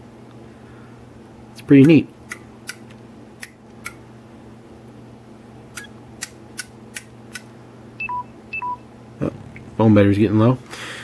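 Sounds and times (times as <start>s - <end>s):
faint steady hum: 0.0s - 11.0s
phone two-note beeps: 8.0s - 8.8s.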